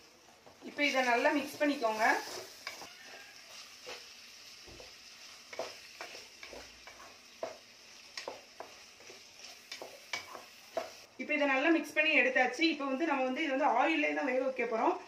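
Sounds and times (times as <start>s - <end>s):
faint sizzle: 0.0s - 15.0s
spatula scraping pan: 0.9s - 11.1s.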